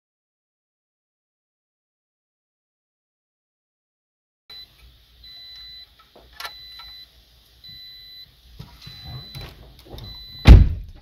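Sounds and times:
car warning chime beeping: 4.5 - 10.6.

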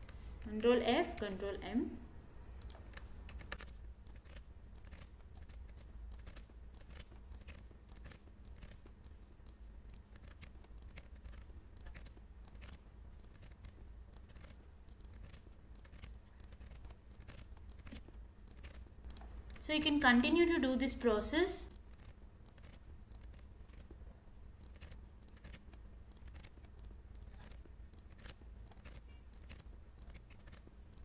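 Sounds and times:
steady low hum: 0.0 - 31.0
mouse and keyboard clicking: 2.6 - 21.0, 21.6 - 31.0.

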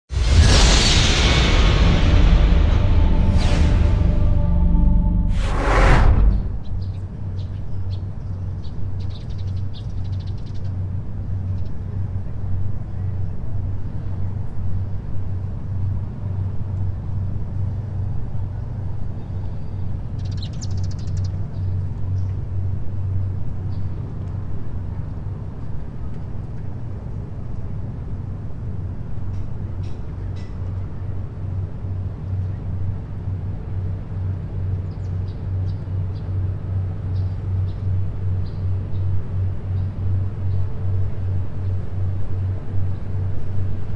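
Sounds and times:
low rumble: 0.1 - 7.9.

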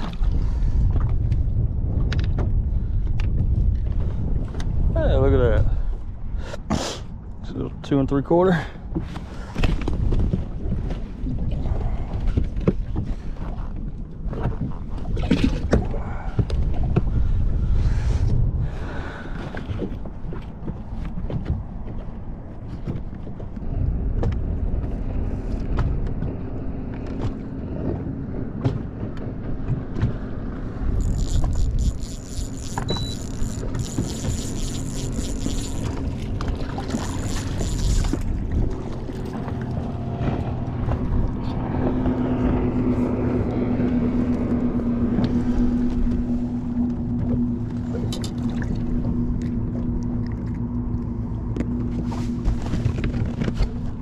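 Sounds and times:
low rumble: 0.0 - 6.5, 8.6 - 54.0
wind on microphone: 0.0 - 7.8, 8.8 - 54.0
boat motor hum: 0.0 - 54.0
fishing reel whirring: 30.8 - 38.4.

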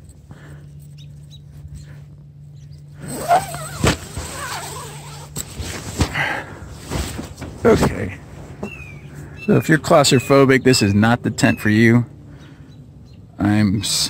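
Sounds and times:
tent zipper pulled: 3.0 - 6.2
sharp knocks on tent: 3.6 - 4.5.

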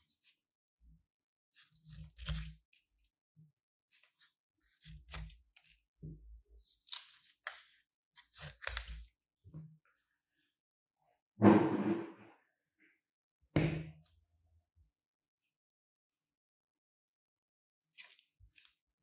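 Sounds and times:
scissors snipping paper: 1.7 - 2.9, 3.9 - 5.9, 6.6 - 9.2.

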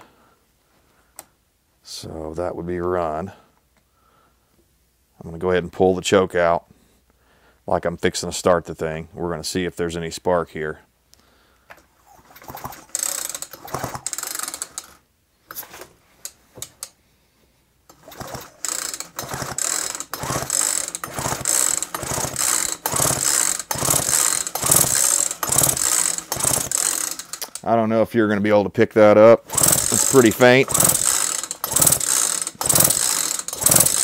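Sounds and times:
chainsaw starter rope whirring: 12.0 - 15.9, 17.9 - 27.7, 29.4 - 34.0
engine spinning over: 12.4 - 14.5, 18.0 - 27.6, 29.5 - 34.0.

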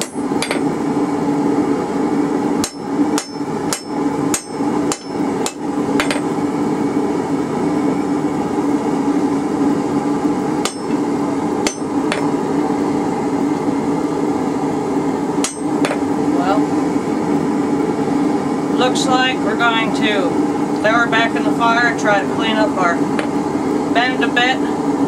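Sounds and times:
hammer striking metal on anvil: 0.0 - 0.7, 2.6 - 6.3, 10.6 - 11.0, 11.6 - 12.3, 15.4 - 16.0
loud steady hum: 0.0 - 25.0.

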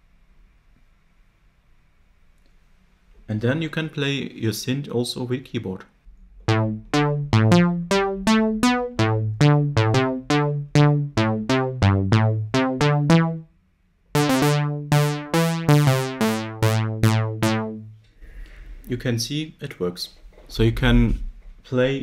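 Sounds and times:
synthesizer bass notes: 6.5 - 13.5, 14.2 - 18.0.

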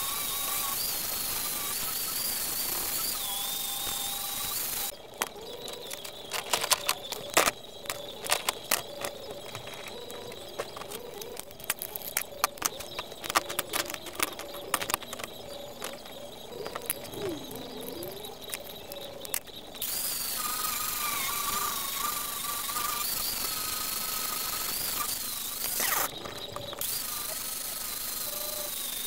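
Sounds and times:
angle grinder grinding steel: 0.0 - 29.0
abrasive disc clicks and knocks: 5.2 - 17.2.

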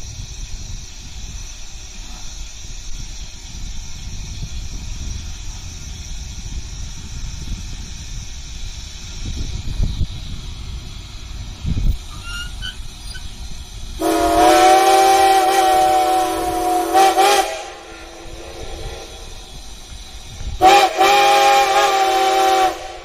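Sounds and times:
steam locomotive whistle: 12.2 - 13.2, 14.0 - 19.1, 20.6 - 23.0.

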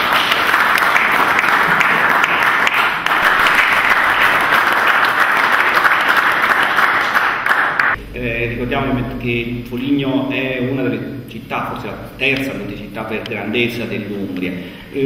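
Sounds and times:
people clapping: 0.0 - 8.0.

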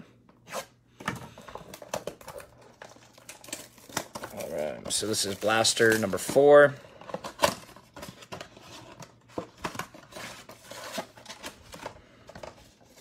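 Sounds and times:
plastic wrap crinkling: 1.5 - 8.8
cardboard packs scraping and tapping: 3.5 - 13.0.

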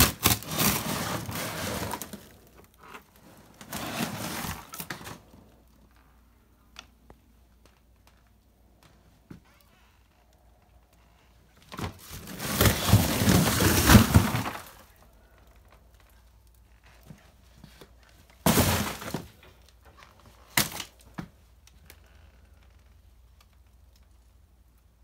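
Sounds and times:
cardboard scraping: 0.0 - 5.4, 11.7 - 15.0, 18.4 - 19.4.

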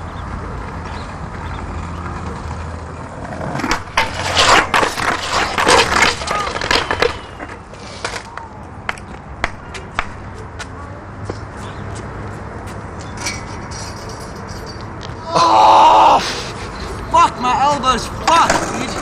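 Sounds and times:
skateboard wheels rolling on paving: 0.0 - 13.0, 16.2 - 19.0
skateboard clattering on metal handrail: 3.5 - 8.3, 18.2 - 19.0
skateboard settling clicks: 3.5 - 9.1.

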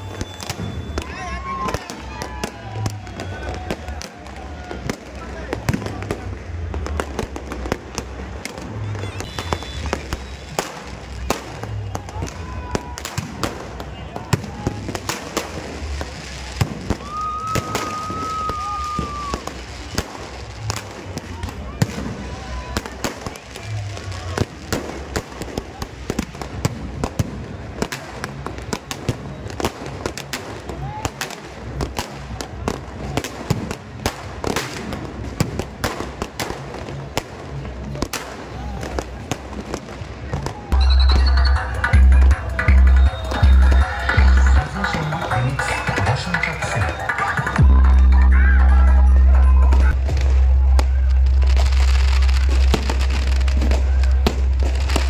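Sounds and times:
firecrackers cracking: 0.0 - 55.0
music with deep pulsing bass: 40.8 - 55.0.

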